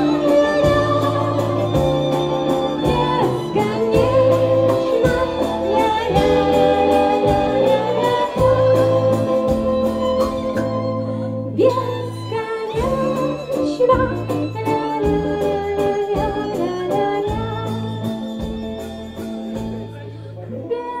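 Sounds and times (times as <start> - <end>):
steady beat: 0.0 - 10.9
woman singing: 0.0 - 18.6, 20.6 - 21.0
bass line: 0.0 - 20.8.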